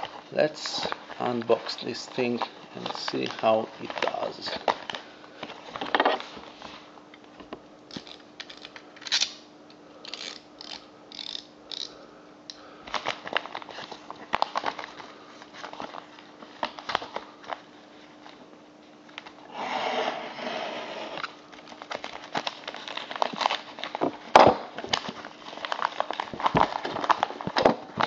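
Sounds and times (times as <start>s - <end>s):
paper envelope crinkling: 0.0s - 6.8s, 12.8s - 19.4s, 21.3s - 28.0s.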